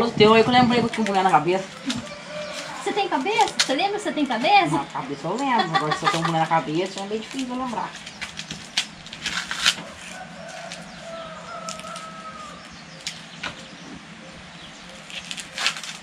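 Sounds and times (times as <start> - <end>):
corn husks tearing: 0.8 - 13.7, 14.8 - 16.0
distant rooster crowing: 1.5 - 5.9, 9.7 - 14.4.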